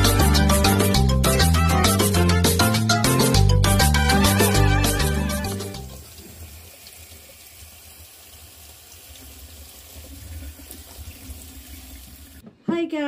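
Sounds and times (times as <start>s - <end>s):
tap water running into sink: 4.3s - 12.4s.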